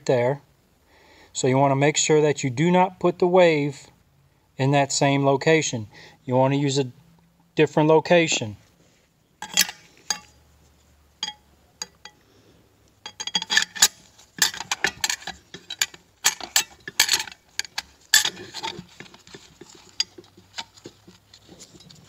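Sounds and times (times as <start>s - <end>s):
metal plates clinking: 9.4s - 10.4s, 11.2s - 12.2s, 13.0s - 22.0s.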